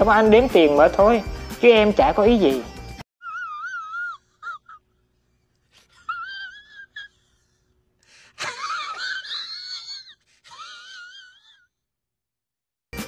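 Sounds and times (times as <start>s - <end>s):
man's wheezy whine: 3.2s - 11.6s.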